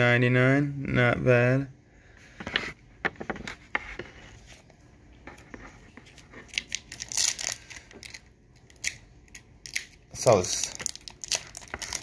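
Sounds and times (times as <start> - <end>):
foil pack crinkling and tearing: 6.4 - 12.0.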